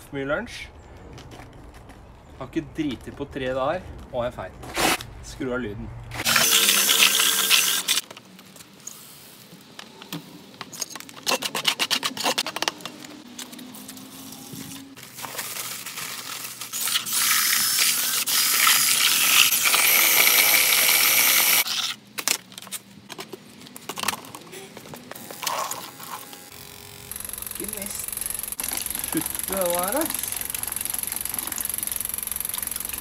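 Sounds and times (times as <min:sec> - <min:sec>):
drill mixing concrete: 0:06.2 - 0:08.0, 0:16.8 - 0:21.8, 0:25.4 - 0:33.0.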